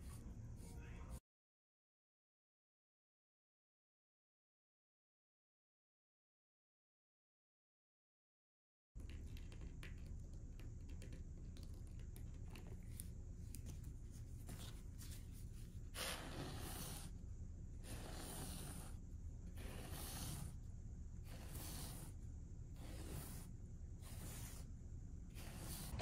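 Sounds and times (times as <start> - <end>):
low steady hum: 9.0 - 26.0
brush strokes on canvas: 22.8 - 24.7.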